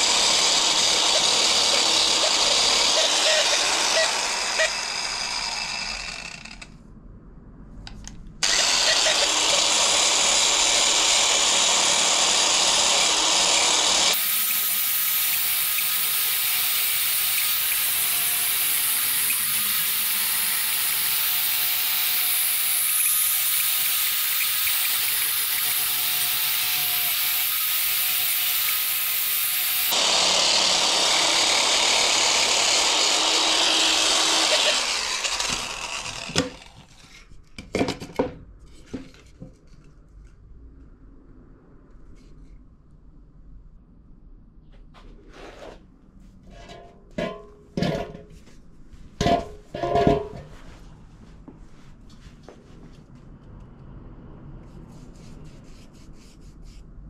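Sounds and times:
power tool grinding wood: 0:00.0 - 0:06.6, 0:08.4 - 0:37.0.

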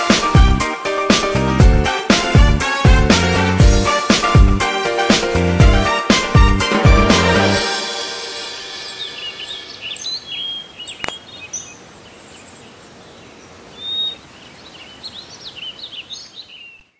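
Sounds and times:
music: 0:00.0 - 0:09.8
birds chirping: 0:07.0 - 0:16.9
bird whistled note: 0:07.6 - 0:10.6.

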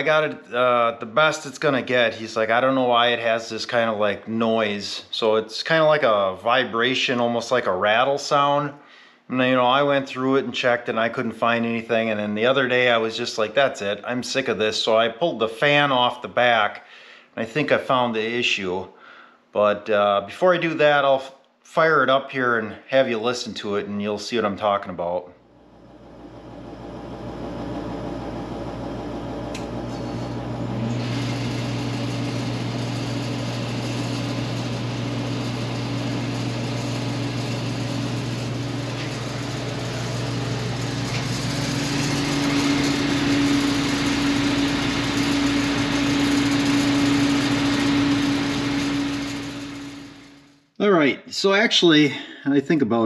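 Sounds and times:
buzzing vibration: 0:25.5 - 0:50.6
heater motor hum: 0:25.6 - 0:50.6.

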